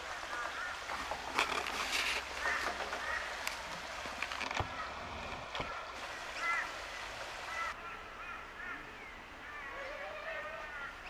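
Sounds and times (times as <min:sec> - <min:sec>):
sharp knocks and rustles: 0:00.1 - 0:05.8.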